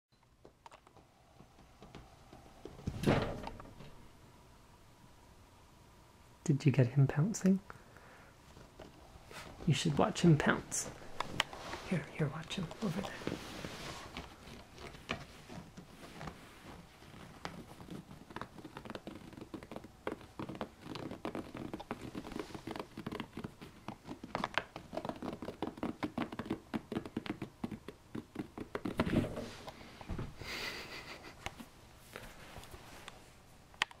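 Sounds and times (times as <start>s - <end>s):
fingernails scratching fabric: 11.0s - 29.7s.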